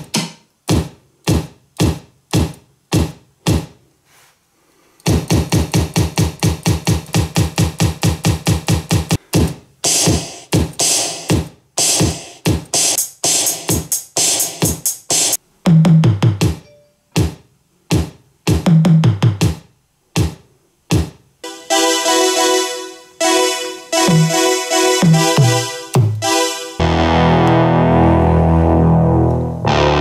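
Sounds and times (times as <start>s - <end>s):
drum machine beats: 0.0s - 3.8s, 5.0s - 16.6s, 17.2s - 27.7s
deep kick drums: 0.7s - 3.7s
held synth chord: 21.4s - 30.0s
synth notes: 21.4s - 30.0s.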